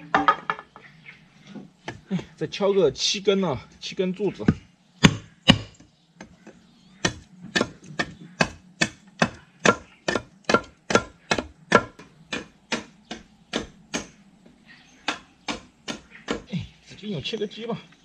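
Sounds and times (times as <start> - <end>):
machete chopping wood: 5.0 - 5.8, 7.0 - 14.2, 15.1 - 16.5.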